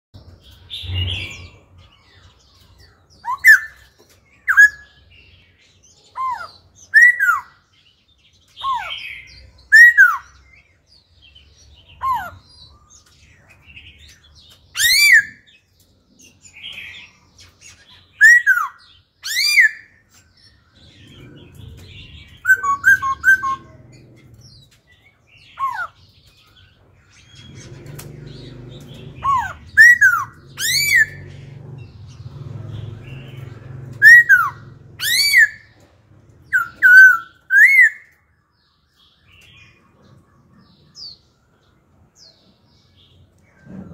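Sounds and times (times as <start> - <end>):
low rumble: 20.6 - 24.8, 26.9 - 36.9.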